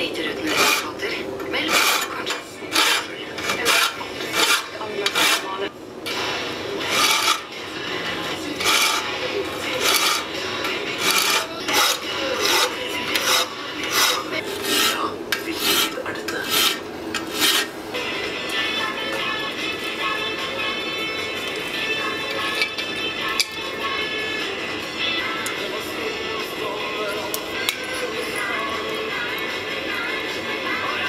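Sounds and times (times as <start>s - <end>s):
hand file rasping on metal: 0.4s - 1.0s, 1.6s - 5.6s, 6.8s - 7.5s, 8.6s - 9.1s, 9.7s - 17.7s.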